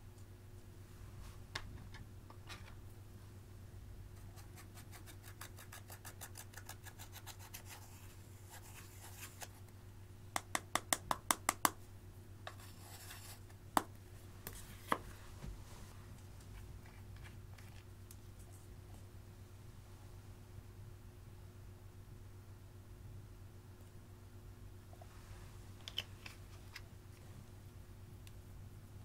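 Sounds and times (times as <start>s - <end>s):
eyeshadow scraped in plastic palette: 12.5s - 13.4s.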